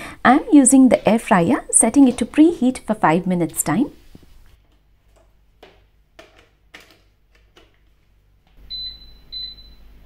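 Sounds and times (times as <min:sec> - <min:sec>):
air fryer beeping: 0:08.6 - 0:10.0.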